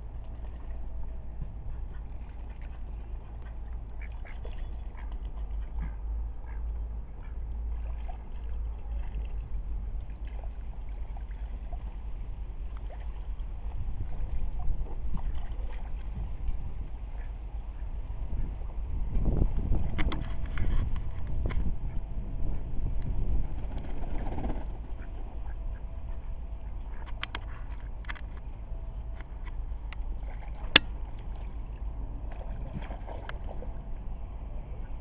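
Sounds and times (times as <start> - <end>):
steady low rumble: 0.0 - 35.0
ducks quacking: 1.6 - 8.2, 24.9 - 28.0.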